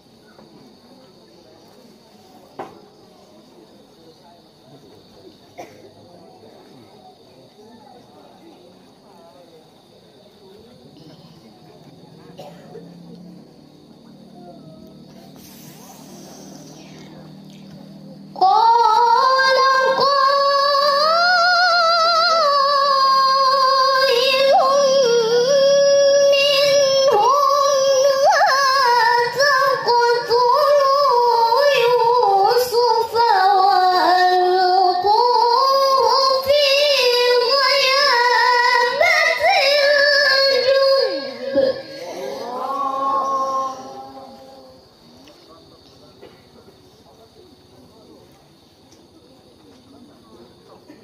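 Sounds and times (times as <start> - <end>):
girl reciting melodically into microphone: 17.0 - 44.8.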